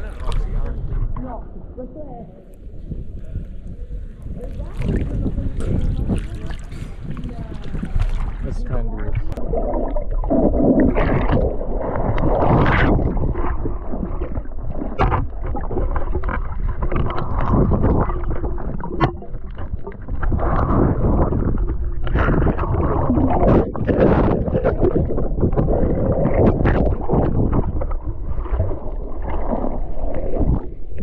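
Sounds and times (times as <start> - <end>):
water sloshing and splashing: 4.2 - 31.0.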